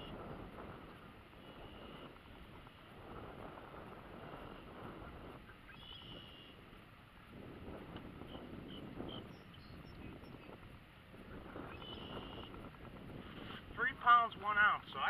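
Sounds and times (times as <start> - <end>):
wind noise on microphone: 0.0 - 15.0
faint high bird call: 5.6 - 6.6, 11.7 - 12.5.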